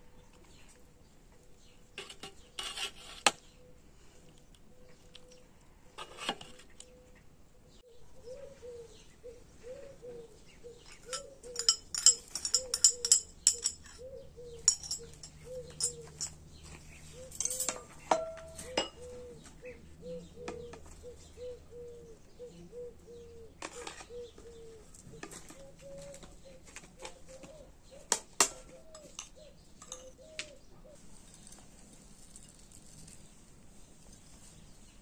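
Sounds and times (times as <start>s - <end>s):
utensils clinking on pot and dishes: 10.9s - 19.2s, 28.4s - 30.4s.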